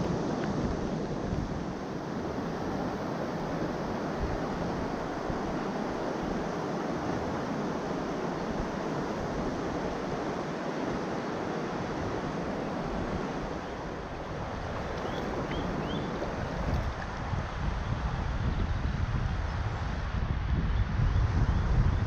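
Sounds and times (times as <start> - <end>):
river rushing over stones: 0.0 - 17.4.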